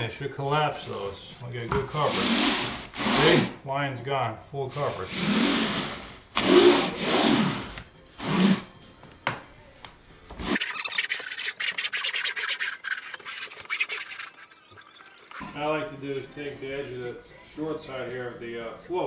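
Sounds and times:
float scraping plastic membrane: 10.4 - 14.4
scratchy rasp with fine clicks: 10.6 - 14.5.

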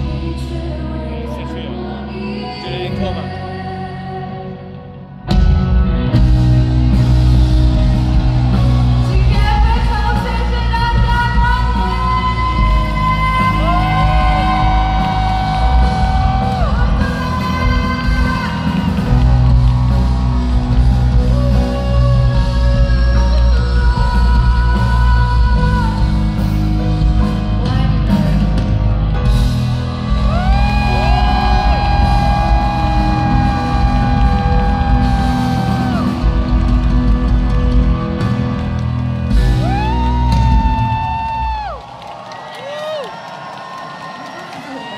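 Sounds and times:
woman singing: 0.0 - 5.0, 8.9 - 19.1, 21.2 - 26.6, 27.6 - 28.7
live band pop music: 0.0 - 41.8.

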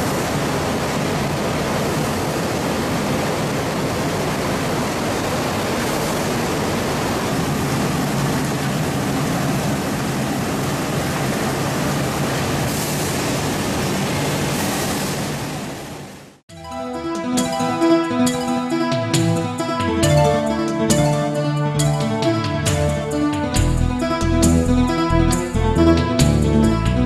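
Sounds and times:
water rushing: 0.0 - 16.4.

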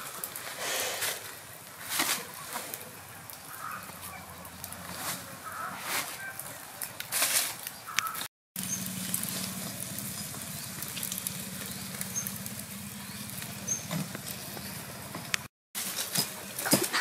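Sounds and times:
embers crackling and hissing: 0.0 - 17.0
fish sizzling over charcoal: 0.0 - 17.0.

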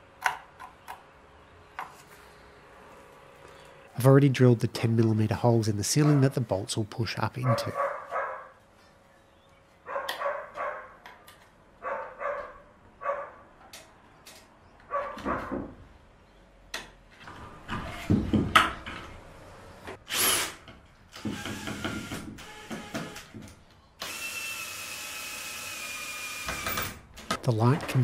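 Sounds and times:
dog barking: 7.4 - 8.6, 9.8 - 11.0, 11.8 - 13.4, 14.9 - 15.5
cordless drill running: 20.1 - 20.6, 21.2 - 23.4, 24.0 - 26.9.

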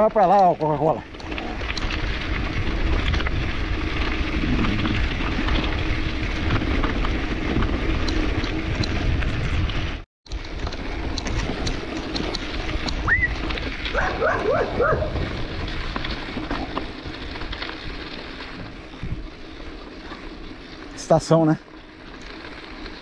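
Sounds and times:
bicycle tyres on dirt road: 0.0 - 23.0
wind over microphone: 1.2 - 10.0, 11.2 - 19.4
dog barking: 13.9 - 15.2.

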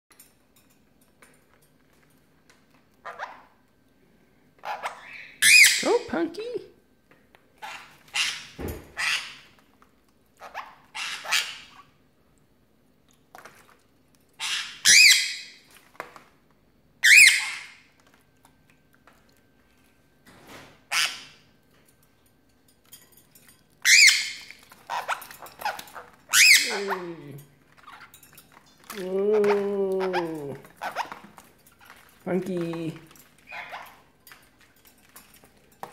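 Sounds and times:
parrots chirping softly: 0.2 - 6.1, 7.1 - 12.1, 13.0 - 35.9
parrots screeching: 3.0 - 3.6, 4.6 - 6.0, 7.6 - 9.6, 10.4 - 11.9, 14.4 - 15.6, 17.0 - 17.9, 20.9 - 21.4, 23.8 - 27.1, 27.8 - 28.2, 29.4 - 32.0, 33.5 - 34.1.

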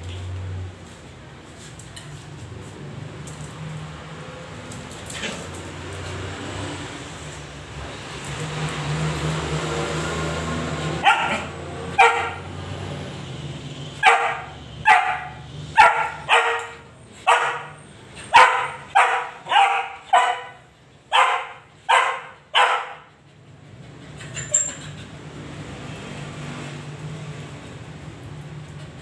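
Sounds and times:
dog barking sharply: 11.0 - 12.5, 14.0 - 23.1.

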